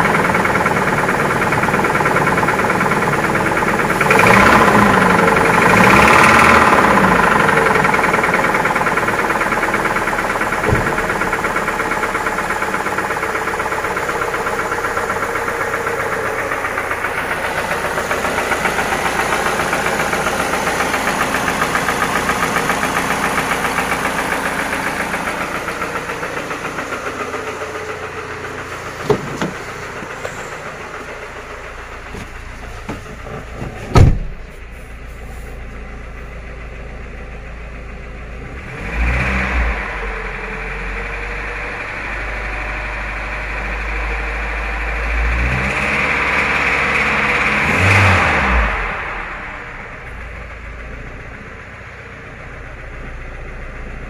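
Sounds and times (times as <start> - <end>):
engine running with rhythmic knock: 0.0 - 54.0
loud thump: 10.6 - 11.3, 29.0 - 29.6, 32.2 - 34.5.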